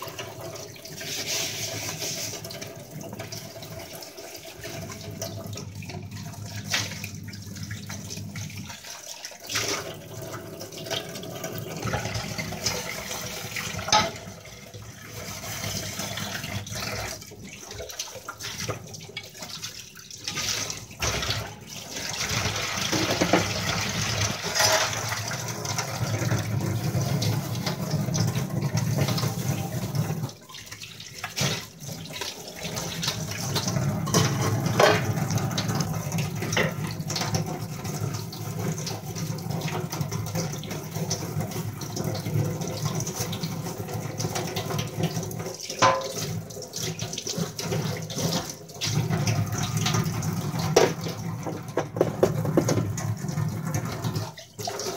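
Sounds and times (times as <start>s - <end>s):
tap running into a sink: 10.8s - 14.4s, 22.2s - 30.4s, 31.2s - 37.6s, 38.5s - 54.4s.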